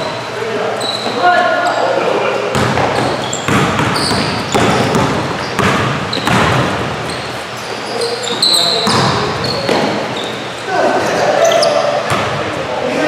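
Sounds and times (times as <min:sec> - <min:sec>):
sneakers squeaking: 0:00.0 - 0:12.8
basketball bouncing on hardwood floor: 0:02.5 - 0:06.9, 0:08.8 - 0:10.0.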